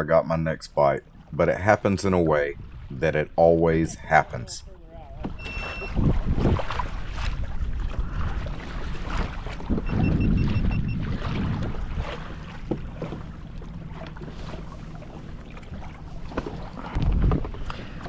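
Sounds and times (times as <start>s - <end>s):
water sloshing along hull: 0.0s - 18.0s
wind buffeting microphone: 2.2s - 13.4s, 14.4s - 18.0s
high beeps: 5.4s - 6.0s, 9.8s - 11.0s.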